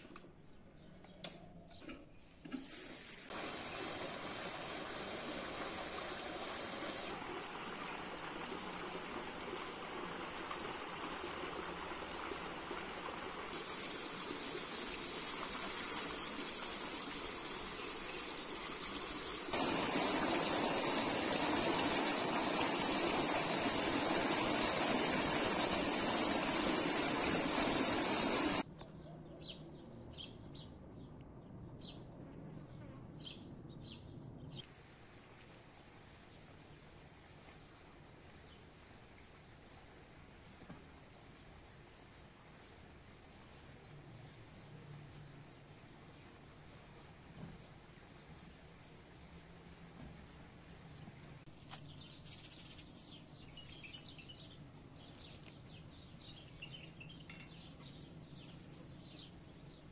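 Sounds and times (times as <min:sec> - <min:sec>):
water splashing into pool: 0:02.6 - 0:28.6.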